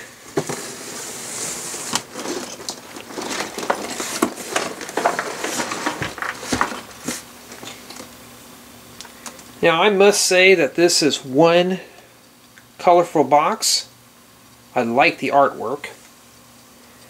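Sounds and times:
cardboard scraping on wood: 0.3 - 7.3.

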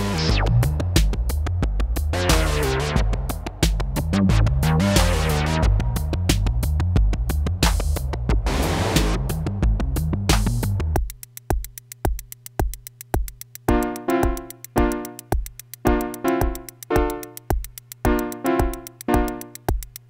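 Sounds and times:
held low bass note: 0.0 - 4.9
drum machine kick beat: 0.0 - 20.0
fast hi-hats: 0.0 - 20.0
rhythmic synth chords: 0.0 - 20.0.

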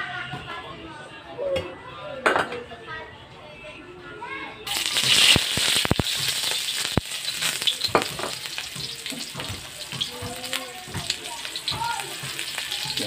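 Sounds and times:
onion sizzling in hot oil: 4.7 - 13.0.

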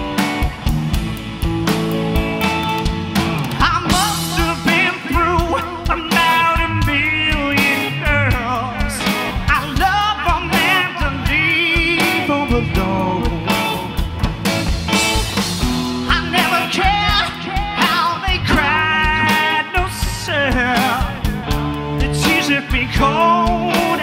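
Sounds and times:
distorted electric guitar: 0.0 - 24.0
drums: 0.0 - 24.0
man singing lead vocal: 3.6 - 14.0, 16.0 - 24.0.

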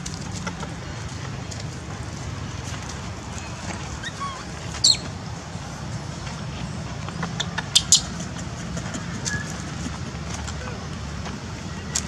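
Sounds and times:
monkey shrieks: 4.0 - 5.1.

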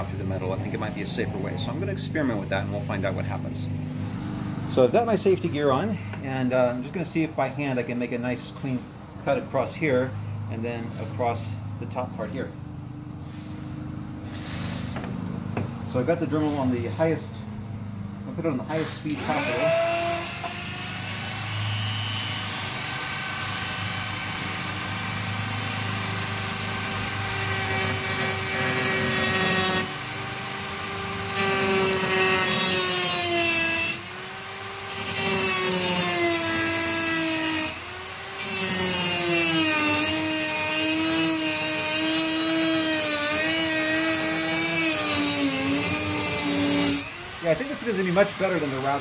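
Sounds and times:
rotary tool cutting sheet metal: 18.7 - 49.0.

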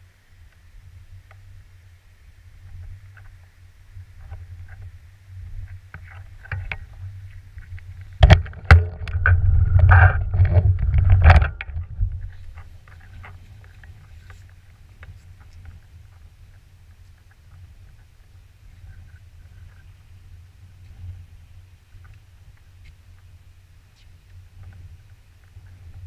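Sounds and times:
scooter rumbling and rattling: 4.1 - 16.6
sharp knocks: 8.2 - 11.8.

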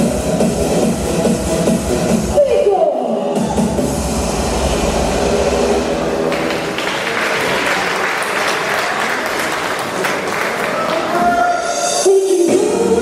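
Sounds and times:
dance music with bass beat: 0.0 - 2.4
crowd applauding: 6.2 - 11.7.

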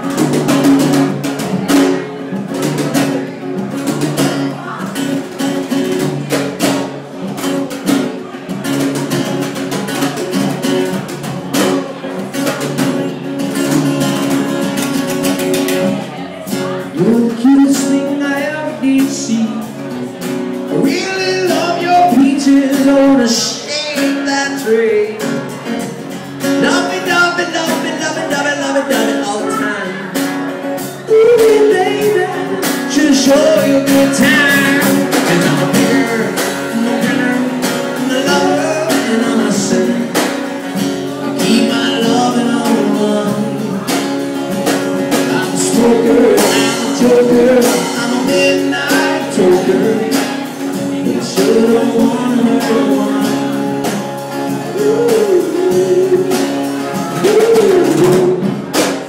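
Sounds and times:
acoustic guitar strumming: 0.0 - 59.0
drum kit and cymbals: 30.3 - 59.0.

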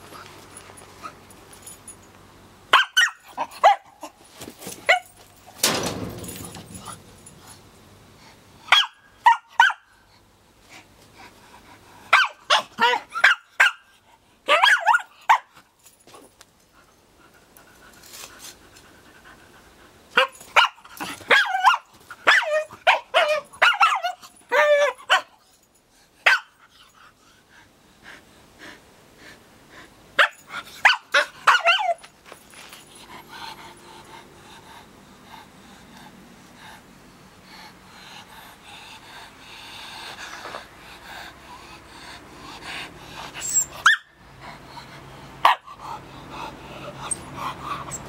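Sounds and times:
dog barking and growling: 12.1 - 13.9, 20.1 - 25.4, 30.2 - 32.0
dog panting: 32.8 - 36.8, 37.4 - 48.0.

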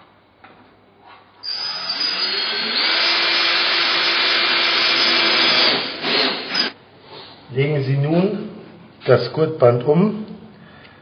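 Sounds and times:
cordless drill running: 1.5 - 6.8.

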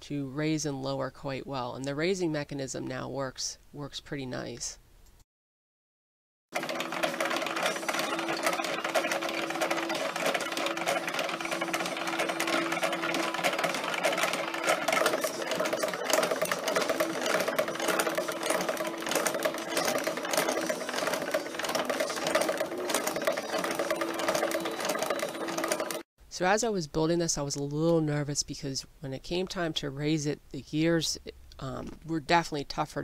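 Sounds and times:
steady mechanical tone: 6.6 - 26.0.

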